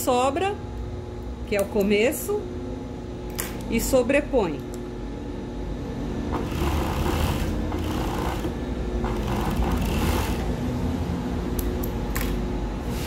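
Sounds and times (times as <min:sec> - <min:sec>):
sewing machine stitching: 0:06.3 - 0:10.5.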